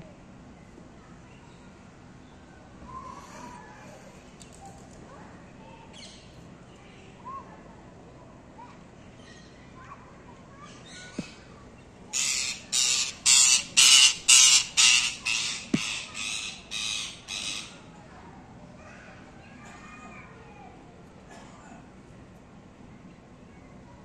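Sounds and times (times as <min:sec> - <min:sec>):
parrot giving harsh calls: 0:12.1 - 0:17.7.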